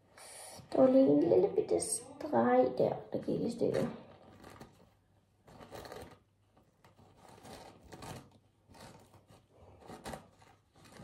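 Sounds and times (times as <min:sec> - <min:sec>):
paper tissue crinkling: 0:04.0 - 0:11.0.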